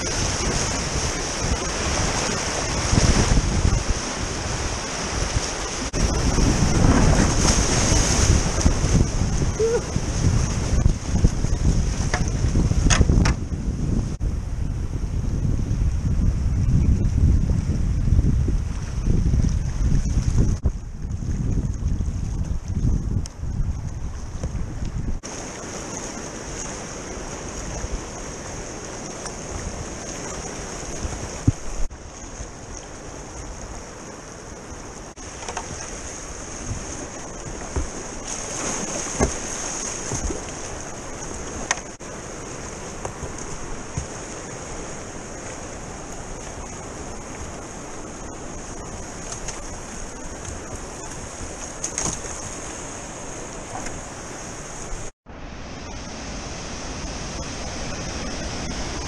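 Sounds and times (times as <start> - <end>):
river water rushing: 0.0 - 12.6, 25.2 - 59.0
paddle splashes and knocks: 0.0 - 13.6, 35.1 - 55.1.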